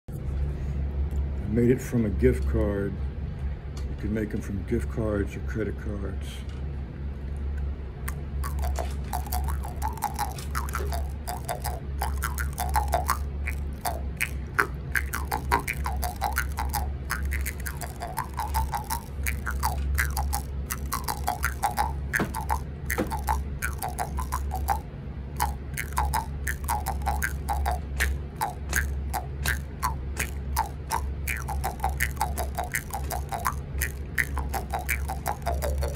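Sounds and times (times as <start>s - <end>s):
jaw harp twanging: 8.1s - 35.9s.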